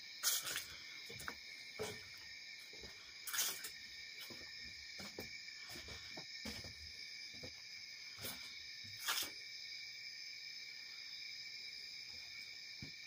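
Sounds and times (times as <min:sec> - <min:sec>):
crickets trilling: 0:00.0 - 0:13.0
footsteps on wooden deck: 0:00.2 - 0:09.3, 0:12.1 - 0:13.0.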